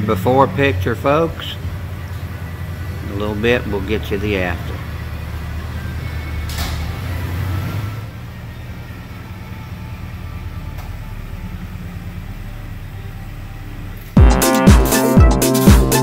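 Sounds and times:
truck engine idling: 0:00.0 - 0:16.0.

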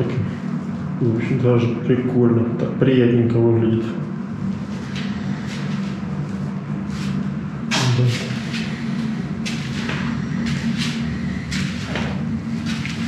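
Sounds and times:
steady low hum: 0:00.0 - 0:13.0
soft scuffs: 0:07.8 - 0:13.0.

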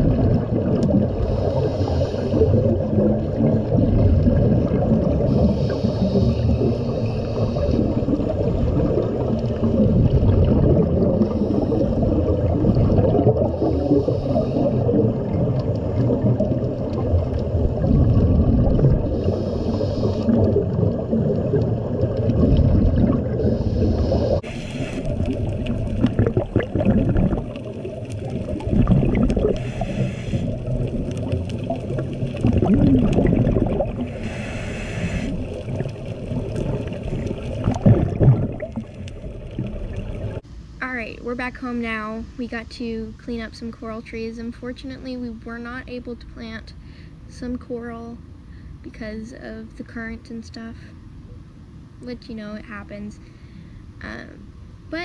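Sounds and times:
diver's exhaled bubbles: 0:00.0 - 0:40.4
underwater rumble of water: 0:00.0 - 0:55.0.

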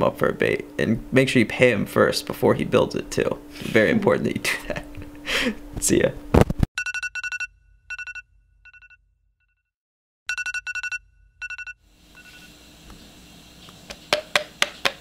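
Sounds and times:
electronic alarm beeping: 0:06.8 - 0:09.0, 0:10.3 - 0:12.6.

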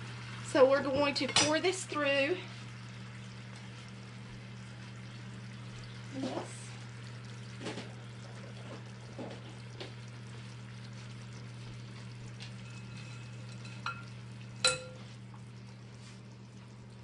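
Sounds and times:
broth simmering with faint sizzle: 0:00.0 - 0:17.0
low hum: 0:01.6 - 0:17.0
strainer clinking on glass bowl: 0:12.6 - 0:15.1.

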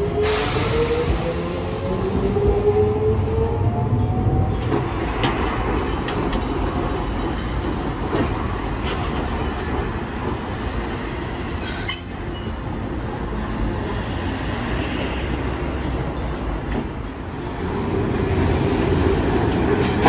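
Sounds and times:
streetcar running over rails: 0:00.0 - 0:20.0
high-pitched wheel squeal: 0:10.4 - 0:12.8.

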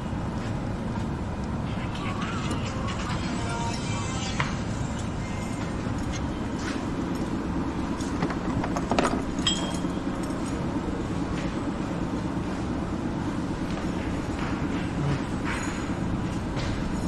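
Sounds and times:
diesel engine rumbling: 0:00.0 - 0:17.0
short metallic clinks: 0:09.4 - 0:10.6.

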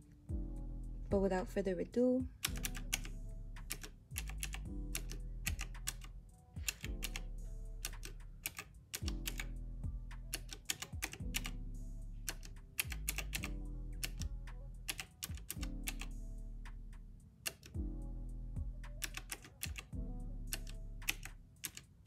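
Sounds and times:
background music with sustained chords: 0:00.0 - 0:21.9
calculator keys clicking: 0:02.4 - 0:07.2, 0:07.8 - 0:09.5, 0:10.2 - 0:11.6, 0:12.3 - 0:14.3, 0:14.9 - 0:16.1, 0:17.4 - 0:17.8, 0:18.9 - 0:19.9, 0:20.5 - 0:22.0.

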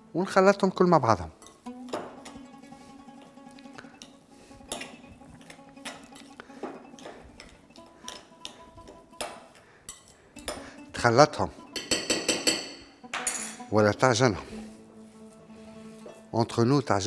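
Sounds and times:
clinks against glass bowl: 0:11.8 - 0:13.6.

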